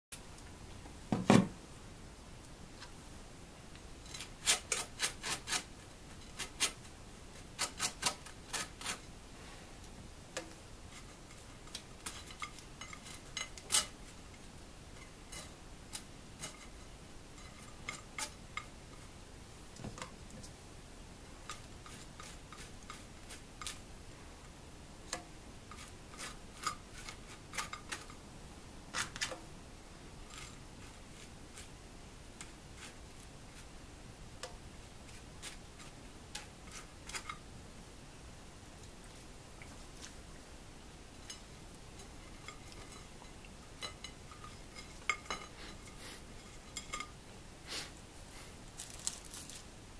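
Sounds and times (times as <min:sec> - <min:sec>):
knife scraping butter on bread: 0:04.1 - 0:09.1, 0:21.5 - 0:23.8, 0:25.7 - 0:28.1, 0:30.3 - 0:31.8, 0:32.4 - 0:33.7, 0:35.1 - 0:37.4.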